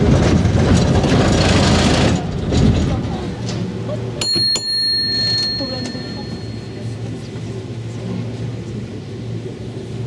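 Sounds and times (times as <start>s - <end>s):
cable car low drone: 0.0s - 10.0s
cable car bell ringing: 4.1s - 7.3s.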